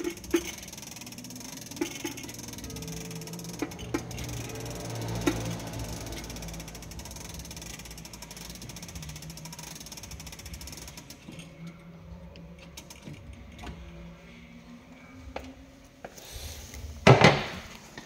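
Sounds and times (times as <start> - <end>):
clock winding ratchet clicking: 0.0 - 11.6, 12.6 - 13.6.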